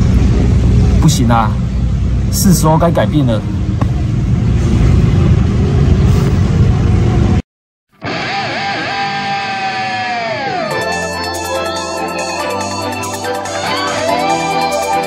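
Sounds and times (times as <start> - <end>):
low outdoor rumble: 0.0 - 7.4
background music sustained notes: 10.6 - 15.0.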